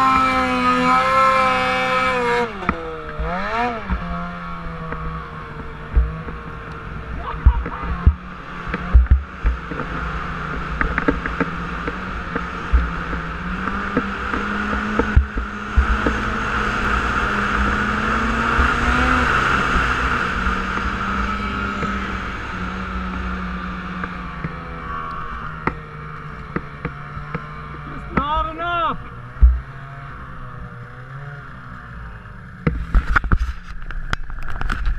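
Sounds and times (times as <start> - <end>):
snowmobile engine running: 0.0 - 34.9.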